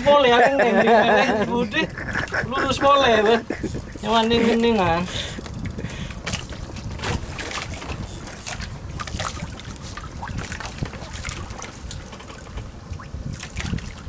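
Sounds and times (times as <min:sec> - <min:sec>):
wind buffeting microphone: 0:00.0 - 0:14.0
water lapping against boat: 0:00.9 - 0:14.0
small knocks and splashes: 0:05.4 - 0:14.0.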